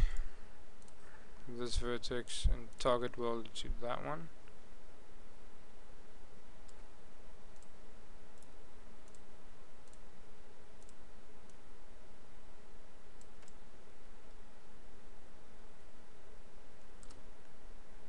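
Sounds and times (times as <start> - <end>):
background hiss: 0.0 - 18.0
computer mouse clicking: 6.6 - 6.9, 7.5 - 10.1, 10.8 - 11.6, 13.2 - 13.6, 17.0 - 17.3.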